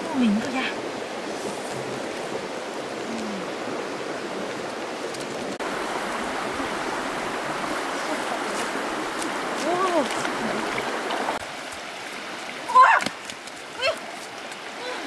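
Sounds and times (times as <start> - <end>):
stream flowing over stones: 0.0 - 15.0.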